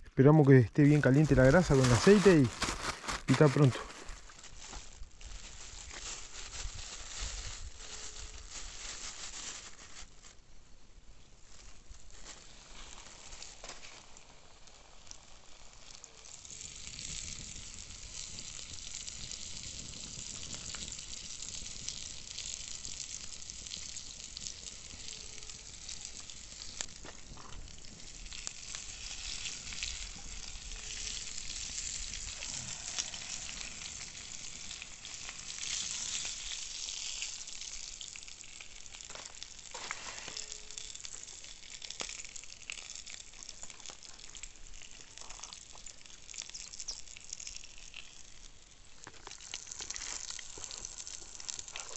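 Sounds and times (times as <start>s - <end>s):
fish frying in hot oil: 11.3s - 51.9s.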